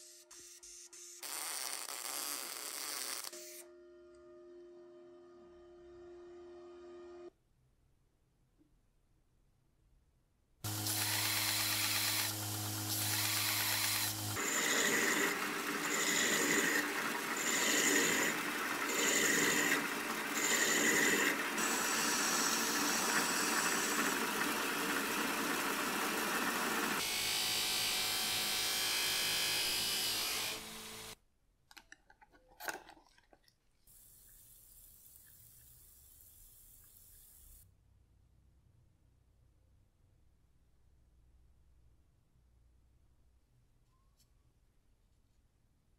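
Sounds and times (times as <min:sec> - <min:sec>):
metal lathe running: 0:10.7 - 0:31.2
low hiss: 0:33.9 - 0:37.6.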